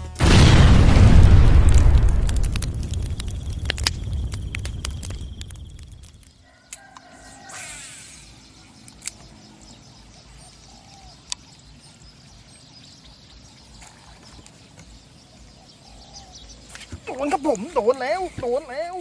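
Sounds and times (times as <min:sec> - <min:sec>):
faint bird calls: 0:06.3 - 0:12.1, 0:13.1 - 0:18.6.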